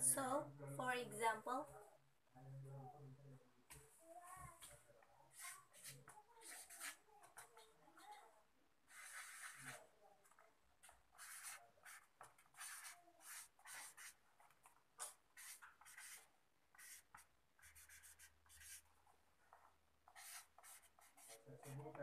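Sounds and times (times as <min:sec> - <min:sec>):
pen scratching on paper: 0:05.3 - 0:08.3, 0:08.9 - 0:18.9, 0:19.5 - 0:22.0.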